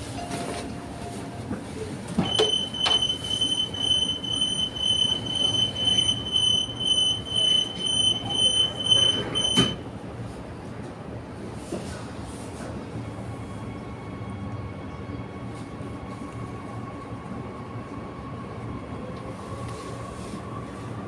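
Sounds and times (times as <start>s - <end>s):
train carriage rumble: 0.0s - 21.0s
high steady warning tone: 2.2s - 9.8s.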